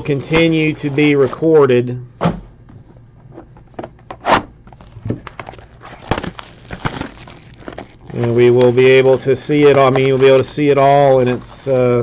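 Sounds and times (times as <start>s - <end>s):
foil wrappers crinkling: 4.7s - 12.0s.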